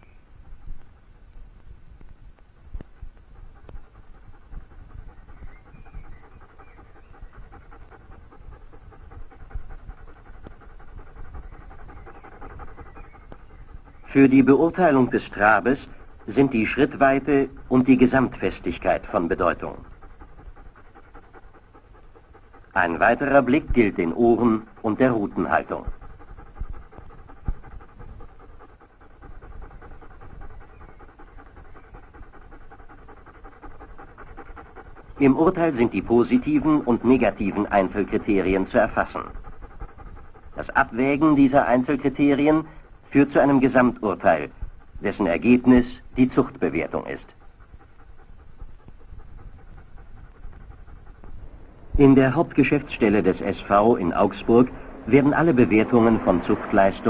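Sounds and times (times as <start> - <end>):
dog panting: 0.0 - 57.0.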